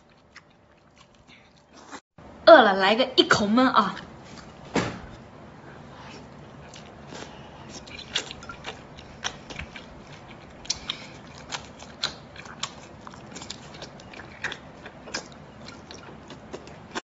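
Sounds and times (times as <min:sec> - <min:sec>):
shellfish being chewed: 0:00.0 - 0:02.0, 0:06.1 - 0:17.0.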